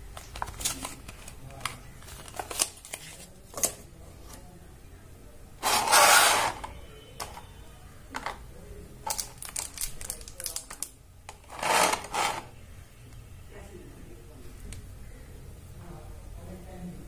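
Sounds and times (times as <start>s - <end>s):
plastic tray rustling scrape: 5.6s - 6.7s, 11.4s - 12.5s
paper and plastic clicks: 9.0s - 11.4s.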